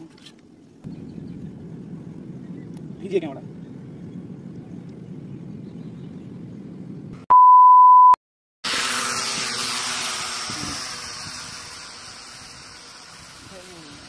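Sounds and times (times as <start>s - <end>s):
electronic beep: 7.3s - 8.2s
toy drone propellers whirring: 8.7s - 14.0s.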